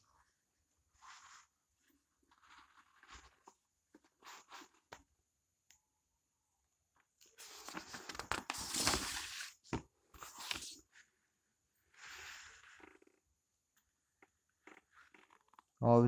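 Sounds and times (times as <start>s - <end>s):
book page turning: 1.0s - 1.5s, 2.2s - 5.0s, 7.3s - 11.0s
paper scuffs: 7.4s - 9.6s, 10.2s - 10.8s.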